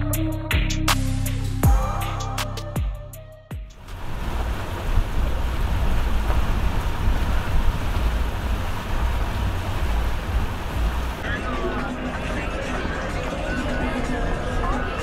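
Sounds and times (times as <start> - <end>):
boat noise: 3.7 - 15.0
wind buffeting microphone: 3.8 - 11.2
open water: 3.8 - 15.0.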